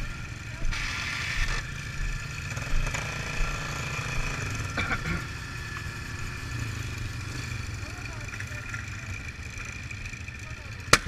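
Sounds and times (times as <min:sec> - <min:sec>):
steady high whine: 0:00.0 - 0:07.6
atv engines rumbling: 0:00.0 - 0:11.0.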